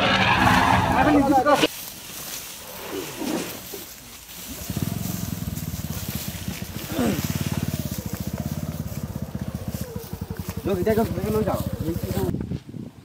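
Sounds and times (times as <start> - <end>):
small engine idling: 4.2 - 12.3.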